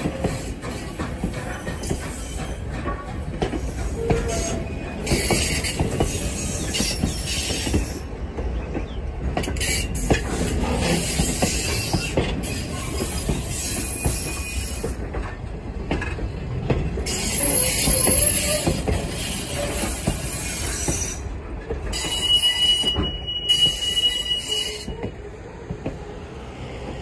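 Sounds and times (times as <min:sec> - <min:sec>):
train rumble: 0:00.0 - 0:27.0
train wheels clicking over rail joints: 0:00.0 - 0:27.0
high-pitched wheel squeal: 0:17.1 - 0:21.2, 0:21.9 - 0:25.0.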